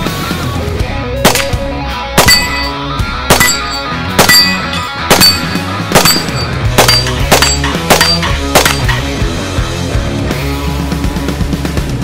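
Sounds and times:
heavy rock music: 0.0 - 12.0
sharp metallic clangs: 2.2 - 9.2.

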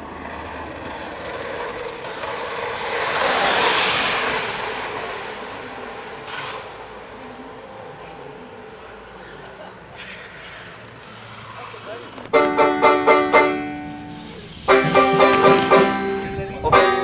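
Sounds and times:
bike tyres rolling on asphalt: 0.0 - 16.7
short clatter: 14.3 - 16.2.

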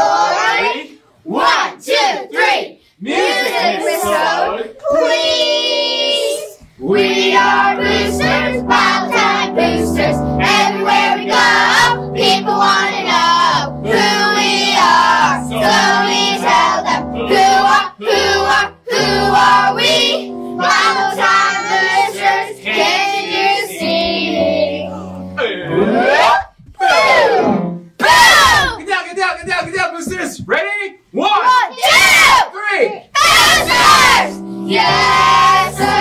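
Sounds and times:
children singing: 0.0 - 27.5, 33.2 - 36.0
upbeat instrumental backing: 6.8 - 30.2, 33.2 - 36.0.

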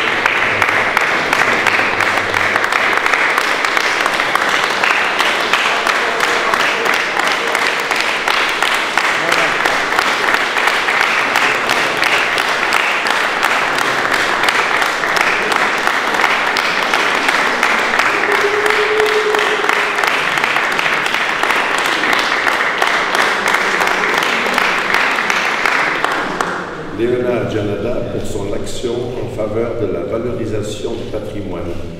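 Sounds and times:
group applauding: 0.0 - 27.0.

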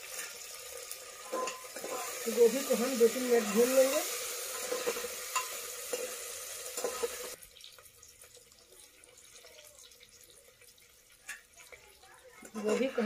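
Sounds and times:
cauliflower sizzling in oil: 0.0 - 13.0
spoon scraping metal pot: 1.2 - 7.4, 12.4 - 13.0.

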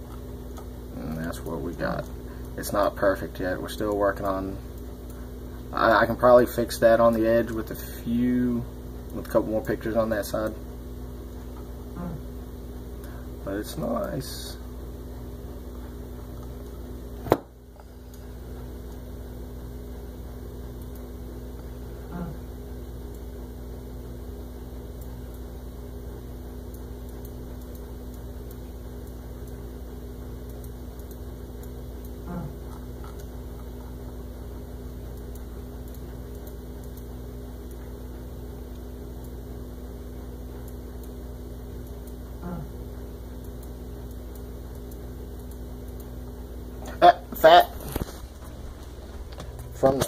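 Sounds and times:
low electrical hum: 0.0 - 50.0
sharp clicks: 26.7 - 29.7, 30.4 - 33.9, 34.8 - 39.4.

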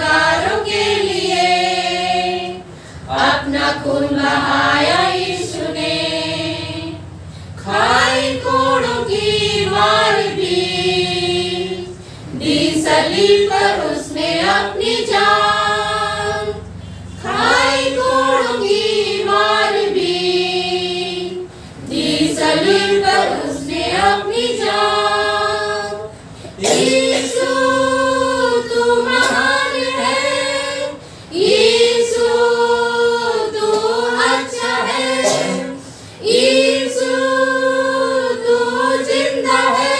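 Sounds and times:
women's choir singing a hymn: 0.0 - 39.9.

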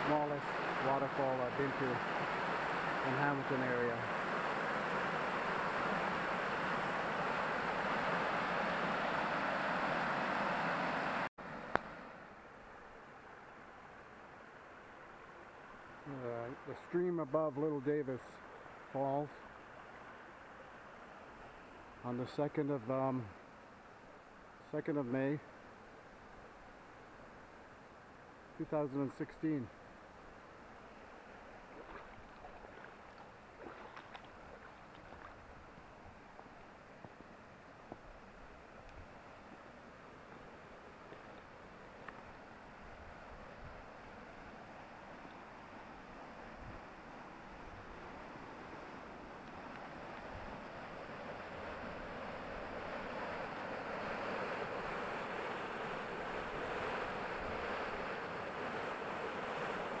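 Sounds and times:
creek water cascading: 0.0 - 60.0
creek trickling over rock: 31.6 - 37.4.

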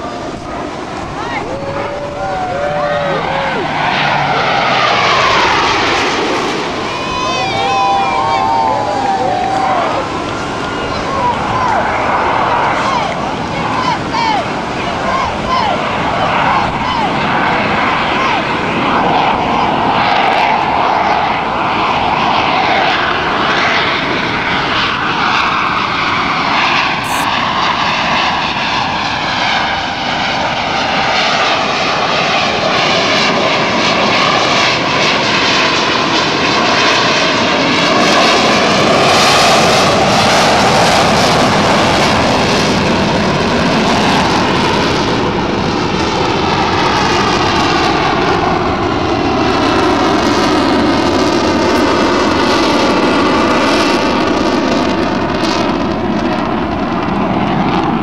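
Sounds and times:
jets whooshing past: 0.0 - 15.0
jet engines roaring: 0.0 - 58.0.

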